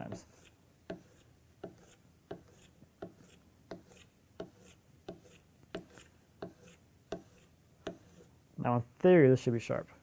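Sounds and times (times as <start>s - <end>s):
chisel scraping on leather strop: 0.0s - 8.3s.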